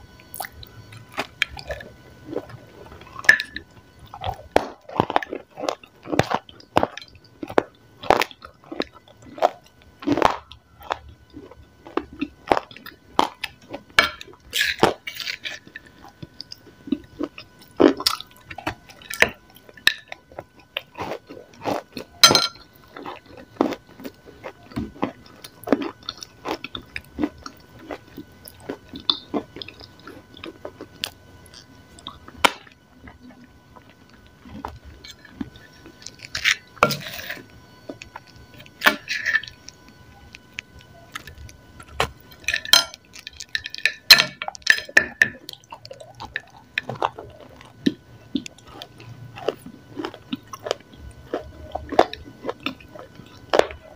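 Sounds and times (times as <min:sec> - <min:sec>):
crunching and chewing: 0:00.0 - 0:53.9.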